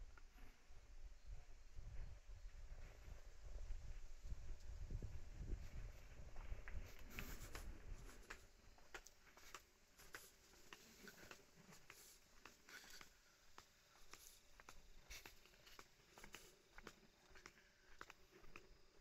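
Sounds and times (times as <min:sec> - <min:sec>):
footsteps on concrete: 0:05.6 - 0:19.0.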